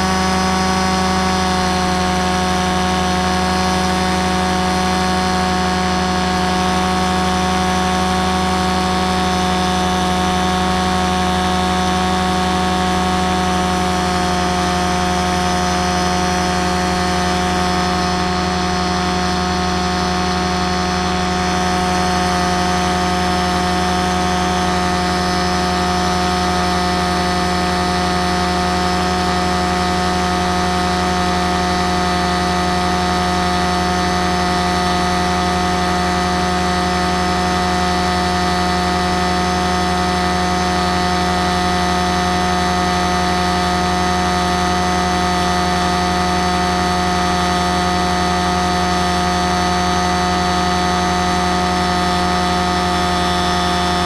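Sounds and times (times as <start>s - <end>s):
model aircraft motor drone: 0.0s - 54.0s.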